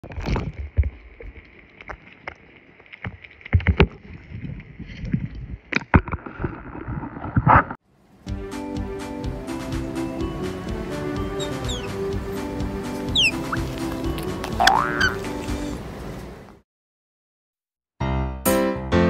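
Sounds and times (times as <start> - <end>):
music: 8.2 - 15.8, 18.0 - 19.0
pet lapping water: 11.2 - 15.8.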